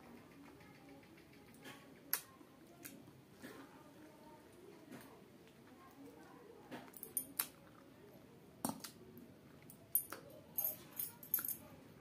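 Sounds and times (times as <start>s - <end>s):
bangles and steel plate clinking: 6.9s - 7.4s, 9.7s - 11.7s.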